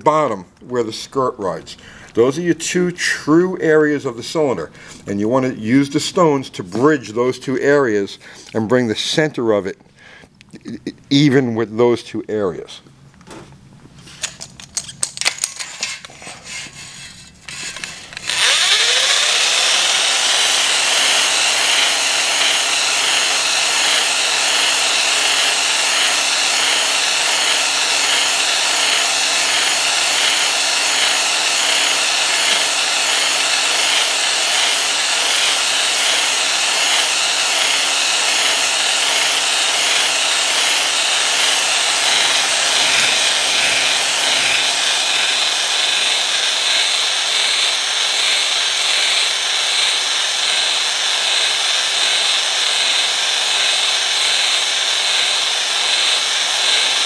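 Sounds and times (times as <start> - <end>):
drill hone grinding in cylinder: 17.4 - 57.0.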